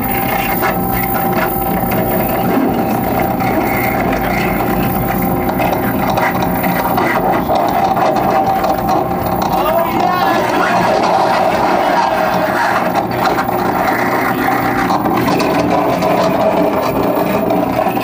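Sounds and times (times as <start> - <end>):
grinding harsh noise music: 0.0 - 18.0
steady held tone: 0.0 - 18.0.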